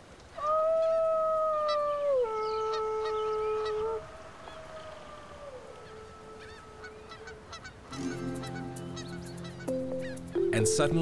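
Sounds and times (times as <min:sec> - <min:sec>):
person imitating wolf howl: 0:00.4 - 0:07.2.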